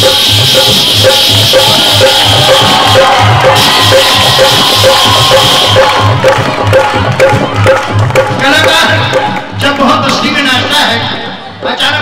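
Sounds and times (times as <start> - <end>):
low drum beat: 0.0 - 11.7.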